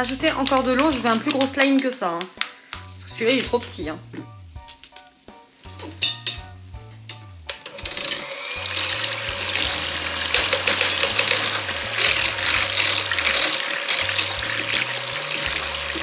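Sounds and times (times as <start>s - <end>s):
electric hand mixer whirring: 7.7s - 16.0s.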